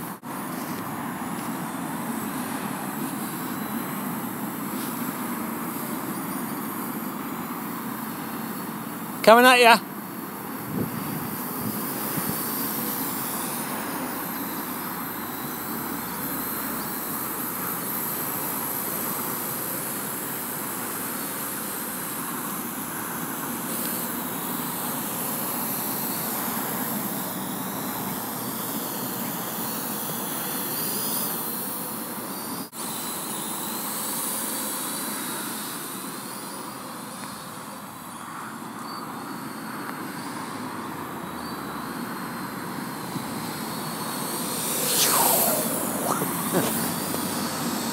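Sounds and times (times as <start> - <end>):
drone propellers whirring: 0.4 - 9.2, 10.4 - 31.7, 41.9 - 47.9.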